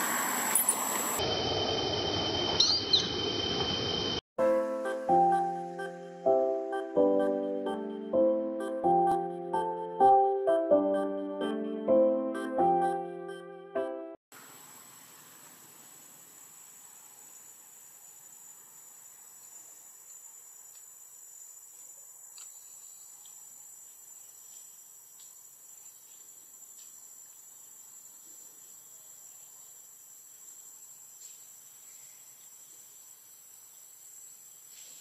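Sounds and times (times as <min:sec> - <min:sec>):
insects droning: 0:00.0 - 0:04.2, 0:14.4 - 0:35.0.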